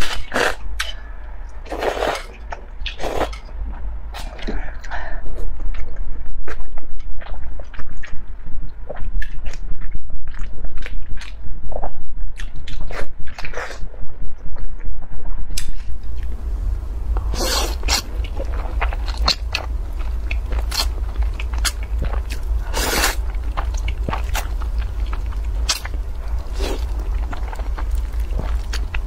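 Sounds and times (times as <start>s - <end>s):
low steady hum: 0.0s - 29.0s
wet chewing and smacking: 1.6s - 29.0s
noodle slurping: 17.3s - 29.0s.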